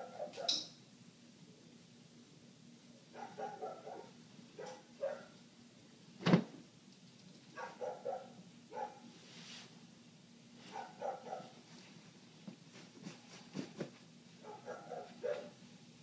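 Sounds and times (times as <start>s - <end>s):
dog barking: 0.0s - 0.7s, 3.1s - 5.4s, 7.6s - 9.1s, 10.7s - 11.6s, 14.4s - 15.6s.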